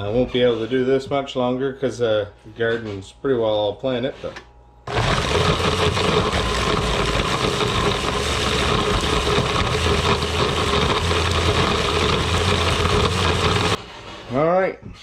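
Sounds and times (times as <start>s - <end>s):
blender motor running: 4.9s - 13.8s.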